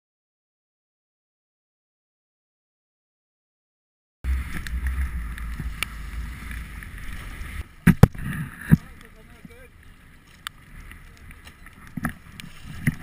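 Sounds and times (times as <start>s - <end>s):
water noise: 4.2s - 13.0s
wind rumbling on microphone: 4.2s - 13.0s.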